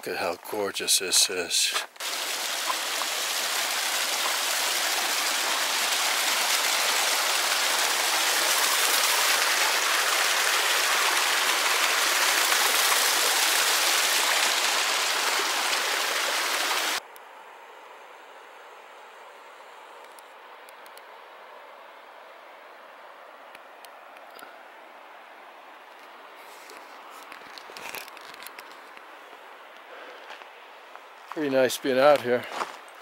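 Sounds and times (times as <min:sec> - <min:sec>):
creek rushing over rocks: 0:00.6 - 0:17.0.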